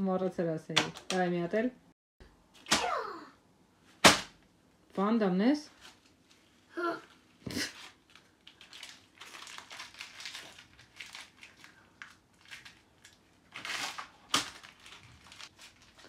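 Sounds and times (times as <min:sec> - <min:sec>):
paper crinkling and rustling: 0:05.8 - 0:16.0.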